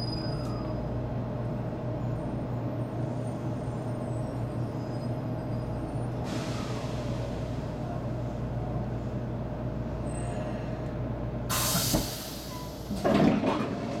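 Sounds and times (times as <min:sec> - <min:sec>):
low hum inside train car: 0:00.0 - 0:14.0
compressed air hiss: 0:11.5 - 0:12.6.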